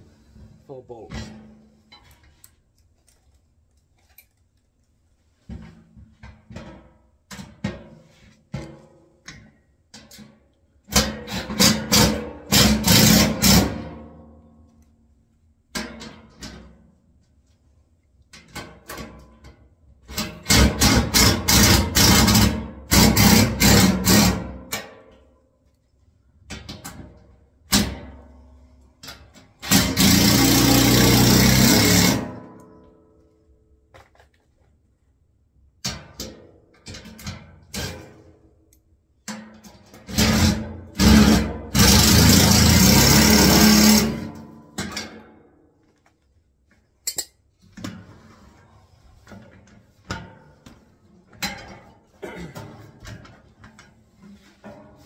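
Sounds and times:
cordless drill running in bursts: 29.7s - 32.2s, 41.8s - 44.1s.

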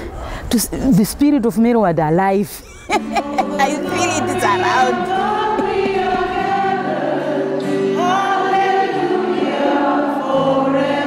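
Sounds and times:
choir singing slow held notes: 2.9s - 11.0s.

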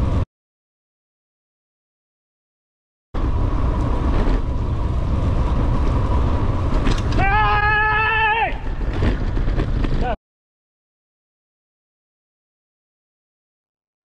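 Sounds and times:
bicycle road rumble: 0.0s - 0.3s, 3.2s - 10.2s
wind buffeting microphone: 3.2s - 10.2s
man yelling: 7.2s - 8.6s.

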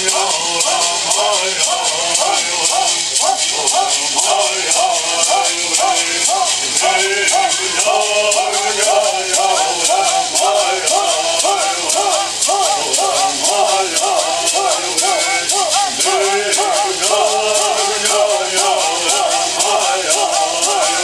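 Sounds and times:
gourd rattles shaking: 0.0s - 21.0s
men singing in unison: 0.0s - 21.0s.

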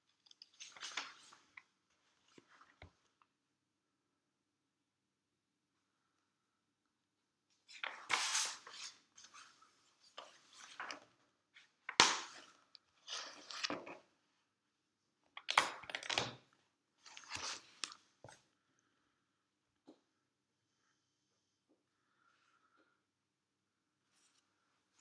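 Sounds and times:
paper rustling and crinkling: 0.2s - 1.6s.

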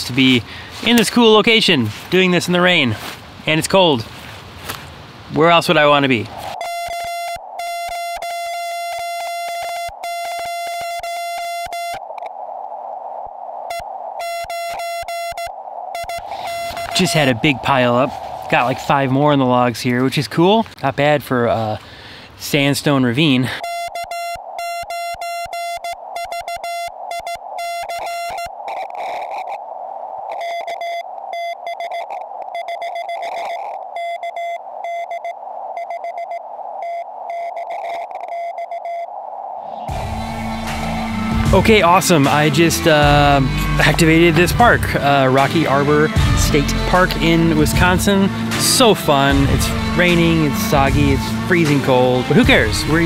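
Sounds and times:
radio receiver hiss: 6.0s - 19.4s
morse code tone: 6.6s - 12.0s, 13.7s - 17.2s, 23.6s - 28.6s, 30.3s - 39.1s.

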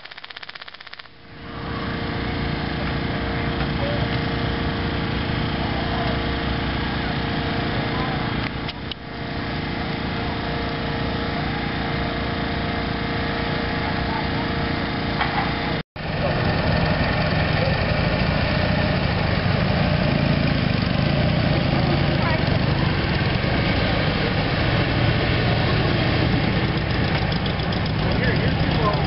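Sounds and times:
engine running steadily: 0.0s - 29.0s.

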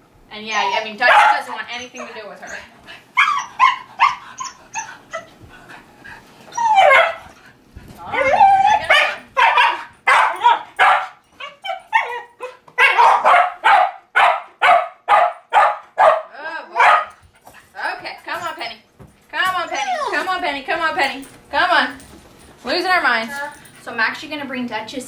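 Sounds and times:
dog yelping: 0.5s - 5.3s, 6.5s - 7.4s, 8.0s - 17.2s, 19.7s - 20.2s
dog barking: 1.0s - 2.1s, 6.8s - 7.2s, 8.8s - 11.2s, 12.0s - 17.2s.

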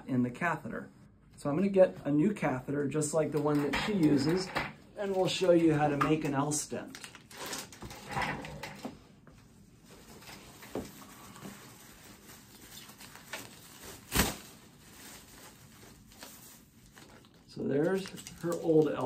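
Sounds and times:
plastic packaging crinkling: 6.7s - 7.9s, 9.9s - 19.0s.

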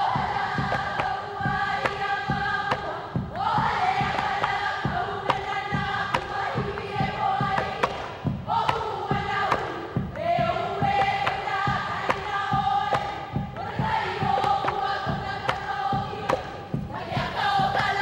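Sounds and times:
percussion thumps and slaps: 0.0s - 18.0s.

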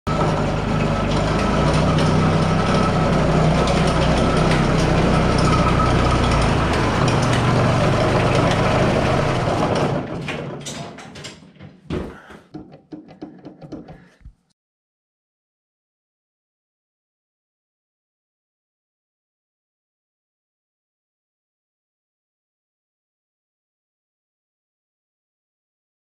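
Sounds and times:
tractor diesel engine idling: 0.1s - 10.2s.

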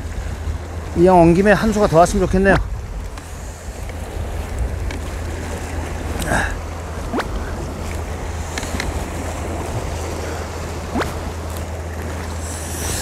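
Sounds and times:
sea waves on rocky shore: 0.0s - 13.0s
wind rumbling on microphone: 0.0s - 13.0s.

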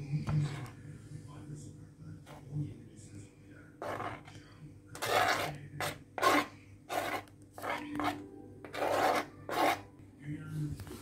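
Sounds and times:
knife scraping cutting board: 3.8s - 4.3s, 5.0s - 9.9s.

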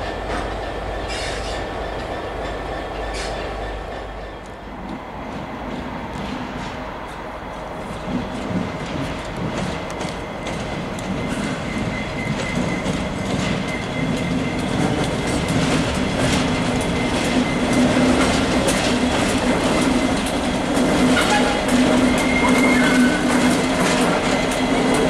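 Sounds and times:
locomotive engine hum: 0.0s - 25.0s
wheels clicking over rail joints: 7.9s - 25.0s.

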